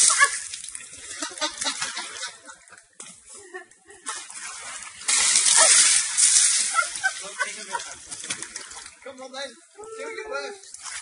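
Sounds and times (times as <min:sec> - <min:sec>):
water splashing and pouring: 0:00.0 - 0:02.4, 0:04.0 - 0:09.4, 0:10.5 - 0:11.0
water streaming from trunk: 0:04.1 - 0:09.4.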